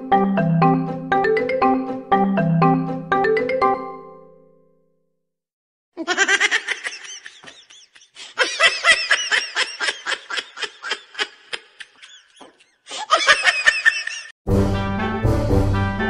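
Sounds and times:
high-pitched giggling: 6.0 - 14.3.

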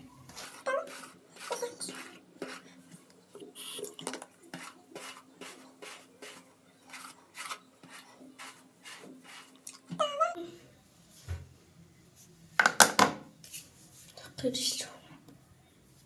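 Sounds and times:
hair rubbing strokes: 0.3 - 2.7, 3.6 - 9.6.

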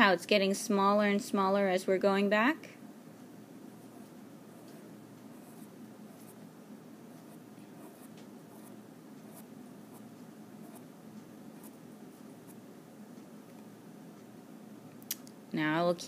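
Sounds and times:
low room hum: 0.0 - 16.0
pencil scratching on paper: 3.8 - 6.4, 7.2 - 10.9.

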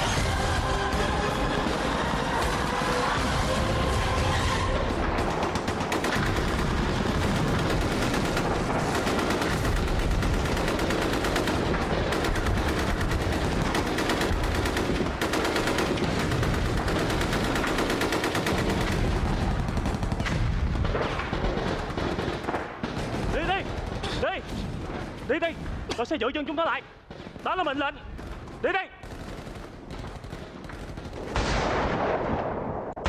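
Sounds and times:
rapid machine-gun fire: 5.0 - 25.2, 27.3 - 32.5.

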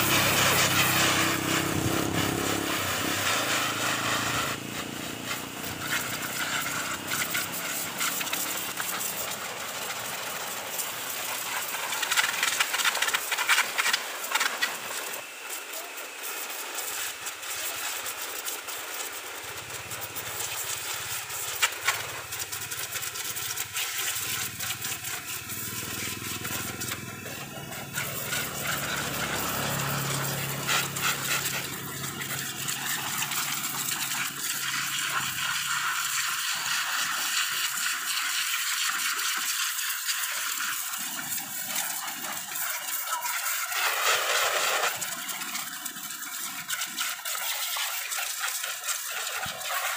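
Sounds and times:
motor humming: 0.0 - 9.2, 23.6 - 35.6
pressure washer spray hissing: 0.0 - 49.9.

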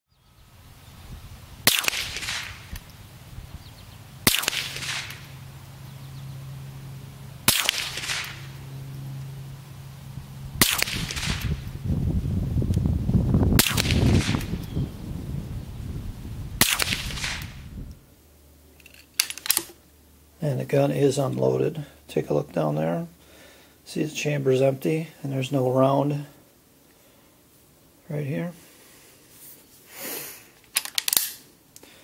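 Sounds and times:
rifle shots cracking: 1.6 - 2.9, 4.2 - 5.4, 7.4 - 8.7, 10.6 - 11.7, 13.6 - 14.6, 16.6 - 17.6.

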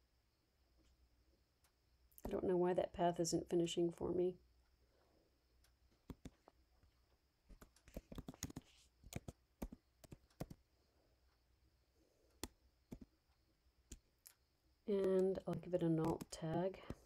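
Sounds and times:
computer keyboard typing: 6.0 - 6.4, 7.5 - 10.6, 12.4 - 13.1, 14.9 - 17.0.

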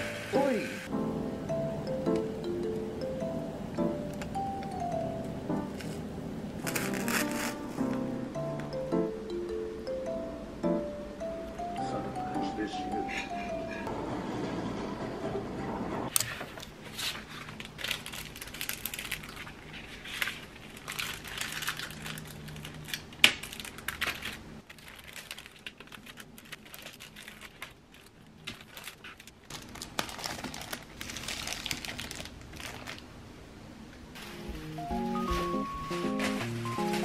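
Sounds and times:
packaging crinkling and rustling: 6.6 - 7.9, 16.2 - 33.1, 34.2 - 37.0.

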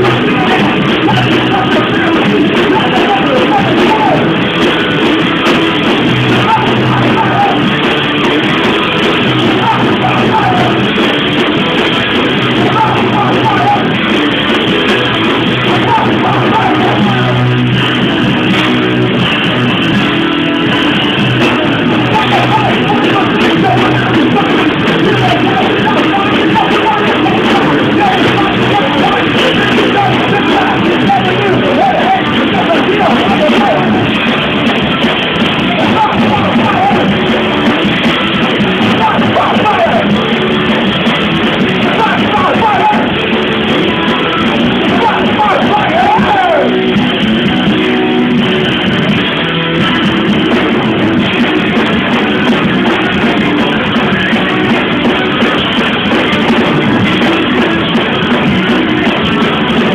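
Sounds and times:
person singing: 0.0 - 19.2, 20.9 - 47.8
electric guitar: 0.0 - 59.9
live rock band playing: 0.0 - 59.9.

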